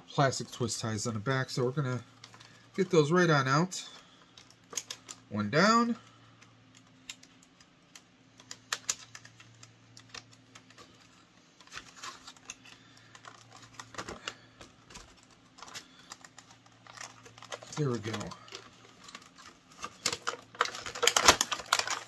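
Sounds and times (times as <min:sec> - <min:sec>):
faint steady hum: 0:00.0 - 0:22.0
plastic twist tie clicking: 0:11.6 - 0:22.0.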